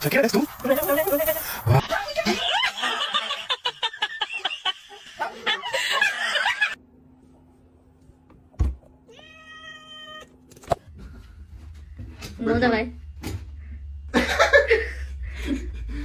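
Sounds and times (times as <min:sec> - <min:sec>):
cat meowing: 0:09.1 - 0:10.3.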